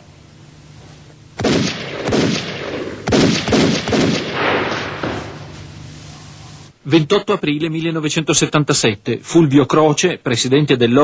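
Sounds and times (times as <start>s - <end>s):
gunshots echoing: 1.4s - 5.6s.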